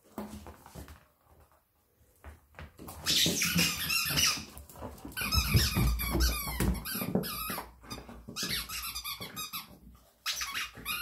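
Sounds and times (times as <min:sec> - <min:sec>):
squeaky dog toy squeaking: 0:03.0 - 0:04.5, 0:05.2 - 0:11.0.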